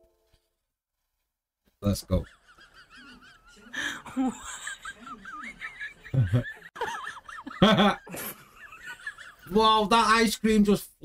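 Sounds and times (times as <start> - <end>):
people laughing loudly: 2.1 - 9.6.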